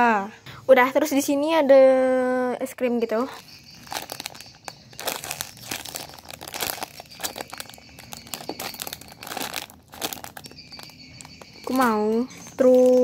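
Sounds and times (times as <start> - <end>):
plastic bag crinkling: 3.3 - 13.0.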